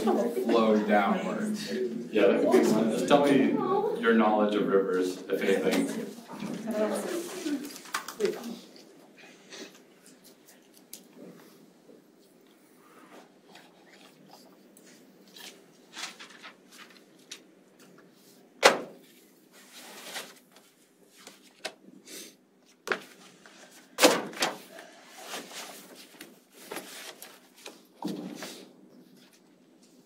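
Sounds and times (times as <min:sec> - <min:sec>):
classroom knocks and rustles: 0:25.4 - 0:29.3.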